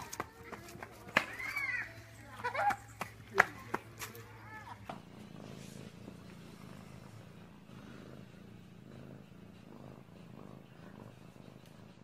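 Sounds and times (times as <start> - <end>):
cat purring: 0.0 - 12.0.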